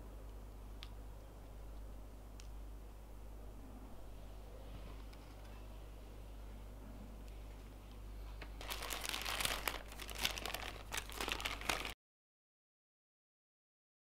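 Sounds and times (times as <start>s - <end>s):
paper wrapper crinkling: 8.6s - 12.0s.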